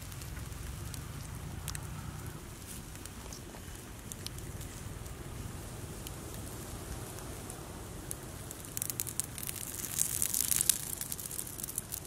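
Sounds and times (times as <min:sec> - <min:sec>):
low background rumble: 0:00.0 - 0:12.0
wood fire crackling and popping: 0:00.0 - 0:12.0.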